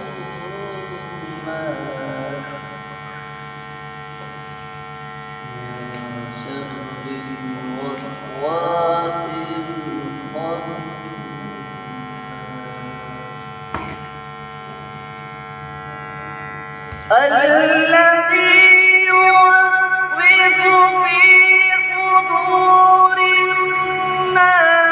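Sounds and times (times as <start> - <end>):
man reciting melodically into microphone: 0.0 - 3.1, 5.5 - 13.3, 17.1 - 24.9
electrical hum: 0.0 - 24.9.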